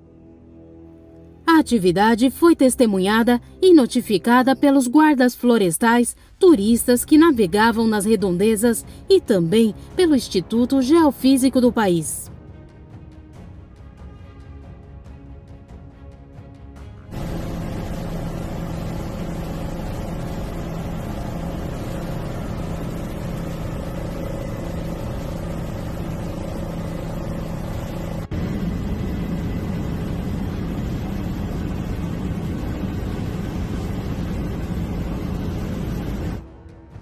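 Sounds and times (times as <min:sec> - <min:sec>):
aircraft engine drone: 0:00.0 - 0:13.1, 0:16.8 - 0:37.0
low hum: 0:17.1 - 0:37.0.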